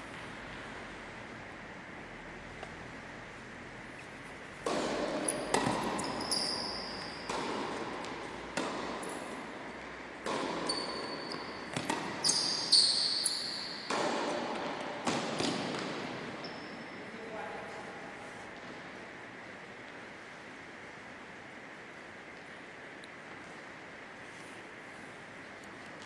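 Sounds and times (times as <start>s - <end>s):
tennis racket hitting ball: 4.5s - 12.8s, 13.6s - 16.4s
tennis ball bouncing: 4.6s - 16.5s
shoes squeaking on court floor: 4.9s - 17.1s.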